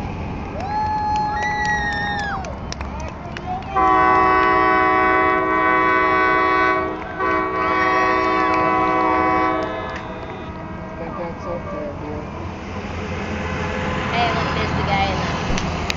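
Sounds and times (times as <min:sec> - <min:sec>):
horns sounding chord: 0:03.8 - 0:11.1.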